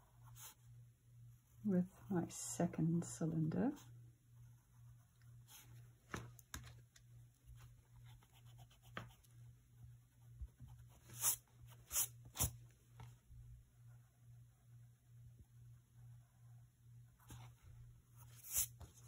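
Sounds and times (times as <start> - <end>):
steady low hum: 0.0 - 19.0
pencil scratching on paper: 7.5 - 9.3, 10.4 - 12.6, 18.2 - 19.0.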